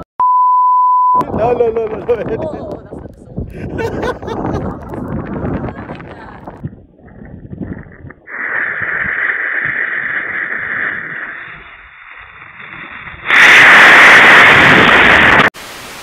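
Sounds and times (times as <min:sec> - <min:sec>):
distorted rushing roar: 0:08.0 - 0:16.0
model rocket motor firing: 0:08.3 - 0:12.0, 0:13.2 - 0:15.5.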